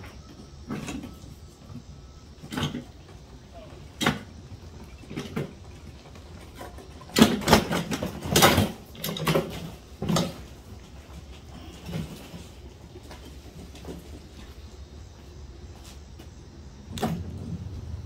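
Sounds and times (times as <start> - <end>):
boxes and hand truck clattering: 2.4 - 14.7.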